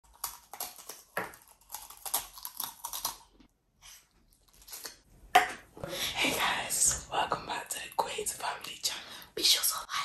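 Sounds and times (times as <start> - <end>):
tortilla chips crunching: 0.0 - 3.4.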